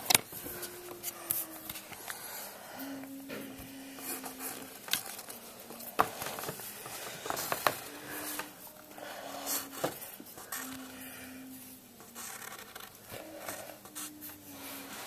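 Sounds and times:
pencil scratching on paper: 12.0s - 15.0s.

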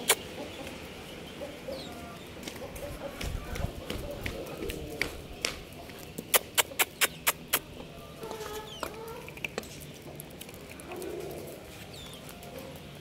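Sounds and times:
footsteps on concrete: 2.4s - 6.8s.

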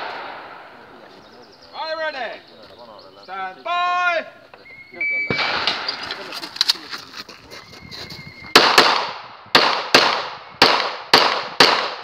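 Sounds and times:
pistol shots with echo: 0.0s - 0.8s, 5.3s - 6.0s, 8.5s - 12.0s.

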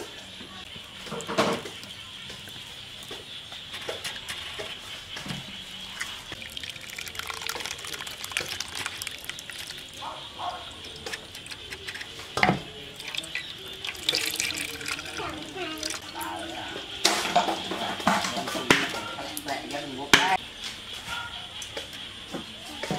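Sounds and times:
liquid trickling and dripping: 0.0s - 20.4s
small wet clicks: 6.0s - 16.3s.

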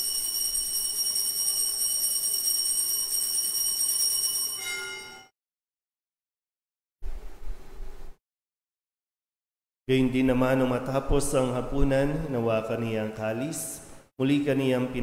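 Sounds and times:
altar bells jingling: 0.0s - 5.3s.

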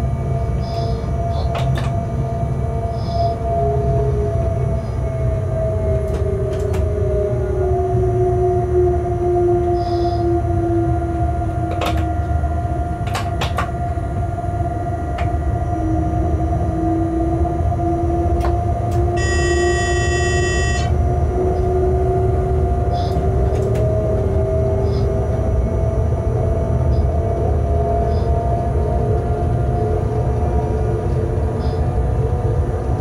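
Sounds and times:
locomotive cab rumble: 0.0s - 33.0s
clicks from the track: 6.1s - 6.9s, 11.7s - 12.1s, 13.0s - 13.7s, 23.1s - 23.9s
motor whine rising in pitch: 14.2s - 26.8s.

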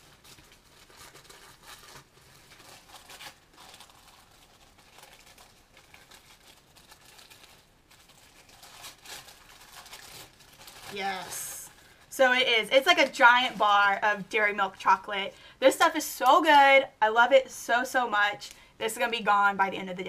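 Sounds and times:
gift wrapping crinkling and tearing: 0.0s - 15.2s.

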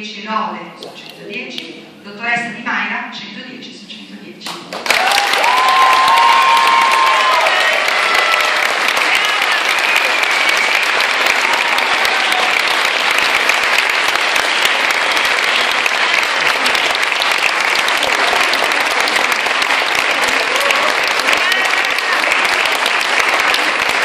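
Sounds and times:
crowd applause: 4.8s - 24.0s.

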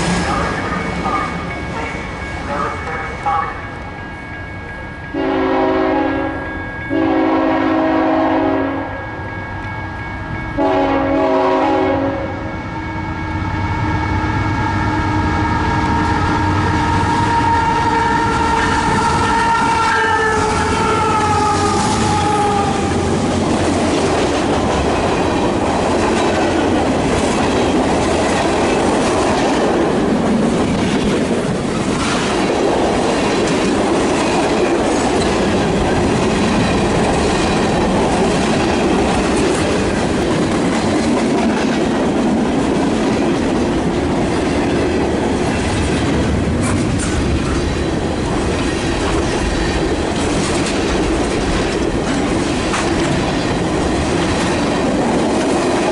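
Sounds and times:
train wheels clickety-clack: 0.0s - 3.4s, 18.1s - 55.9s
freight train rumble: 0.0s - 55.9s.

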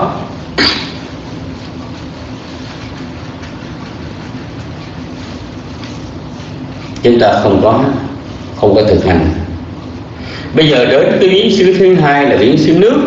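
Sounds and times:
microphone hiss: 0.0s - 13.0s
person speaking: 1.8s - 9.8s.

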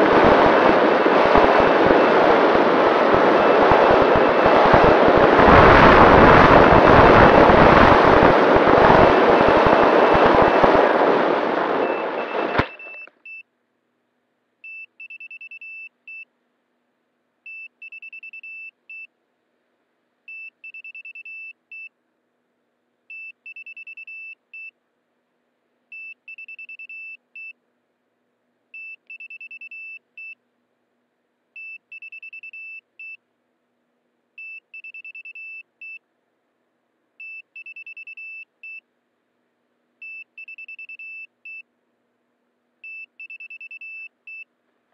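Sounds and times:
wind rush: 0.0s - 12.6s
rapid high beeps: 0.5s - 10.9s, 11.8s - 13.4s, 14.7s - 16.3s, 17.5s - 19.1s, 20.3s - 21.9s, 23.1s - 24.7s, 26.0s - 27.6s, 28.8s - 30.4s, 31.6s - 33.2s, 34.4s - 36.0s, 37.2s - 38.8s, 40.0s - 41.6s, 42.8s - 44.5s.

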